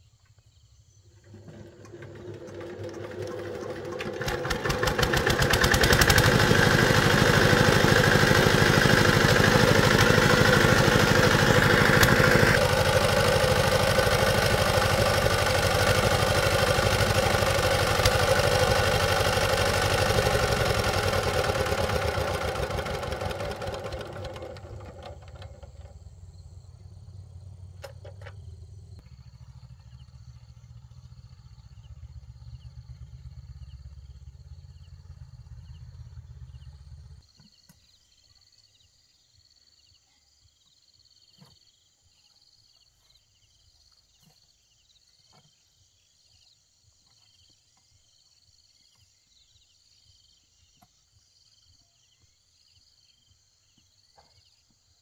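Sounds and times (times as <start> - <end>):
insects chirping: 0.0 - 1.8, 23.2 - 55.0
tractor engine idling: 1.2 - 37.2.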